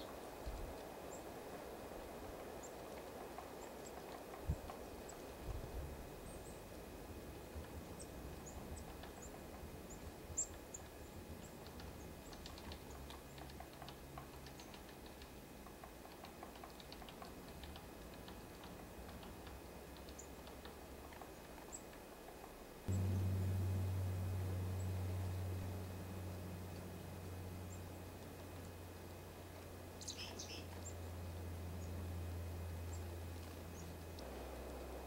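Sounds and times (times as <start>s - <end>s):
songbirds chirping: 2.0s - 34.8s
birds pecking and landing: 10.5s - 23.1s.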